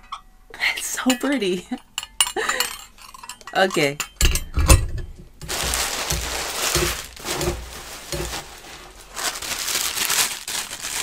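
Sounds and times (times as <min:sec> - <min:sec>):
soft bumps: 0:05.4 - 0:09.4
plastic wrapping crinkling: 0:05.4 - 0:11.0.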